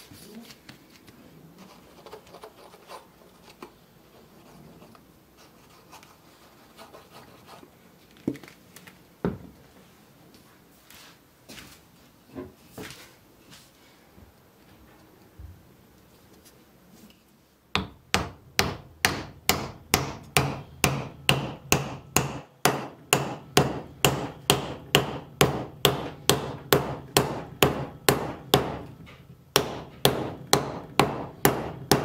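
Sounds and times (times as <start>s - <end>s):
hammering: 17.8s - 32.0s.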